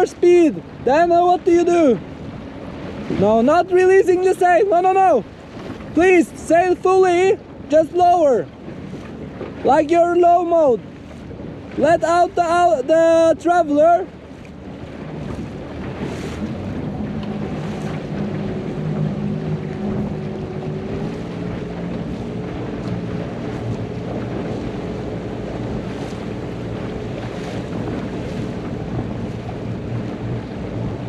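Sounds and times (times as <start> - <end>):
outboard motor running: 0.0 - 31.0
water rushing past hull: 0.0 - 31.0
wind buffeting microphone: 0.0 - 31.0.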